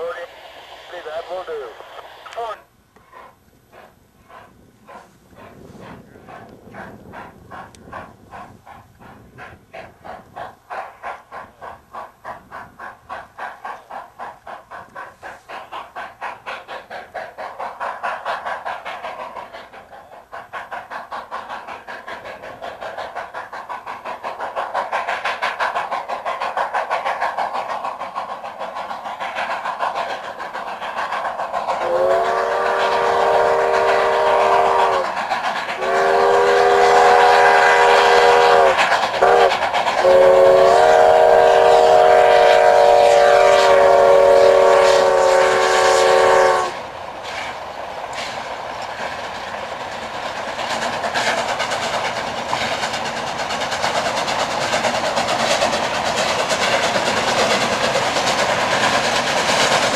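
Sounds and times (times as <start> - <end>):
steam locomotive chuffing: 0.0 - 59.9
steam whistle blasts: 31.8 - 35.1, 35.8 - 46.8.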